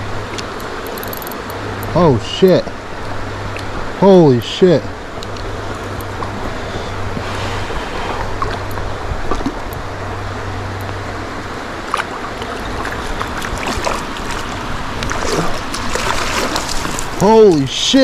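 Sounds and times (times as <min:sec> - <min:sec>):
low hum: 0:00.0 - 0:18.0
river water rushing: 0:00.0 - 0:18.0
wind buffeting microphone: 0:11.8 - 0:17.9.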